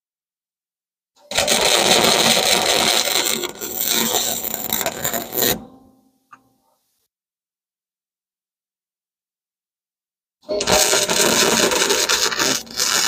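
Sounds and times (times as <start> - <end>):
welder arc crackling: 1.2 - 5.6, 10.5 - 13.0.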